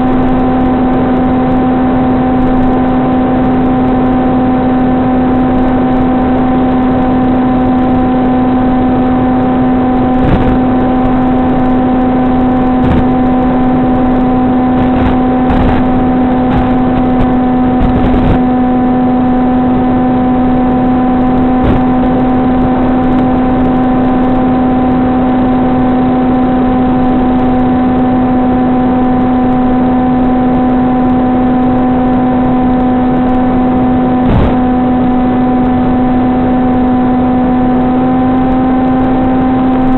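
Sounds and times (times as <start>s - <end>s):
electric motor buzzing whine: 0.0s - 39.9s.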